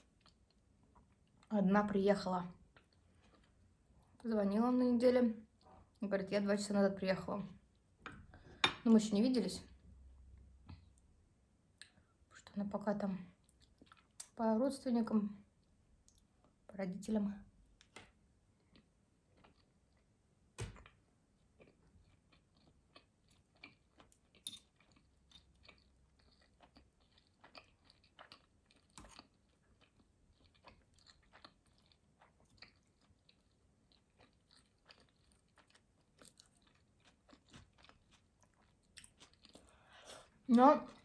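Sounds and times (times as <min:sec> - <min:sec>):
chewing with mouth clicks: 0:13.4 - 0:14.4, 0:21.6 - 0:40.3.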